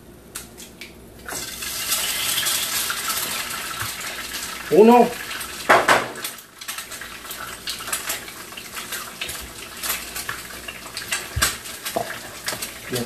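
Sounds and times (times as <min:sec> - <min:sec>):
sizzle of frying: 0:00.0 - 0:13.0
eggshells cracking on a pan: 0:01.3 - 0:12.9.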